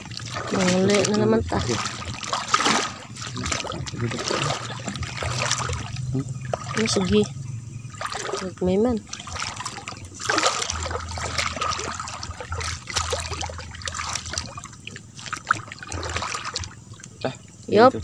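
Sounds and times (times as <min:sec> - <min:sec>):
water splashing while wading: 0:00.0 - 0:18.0.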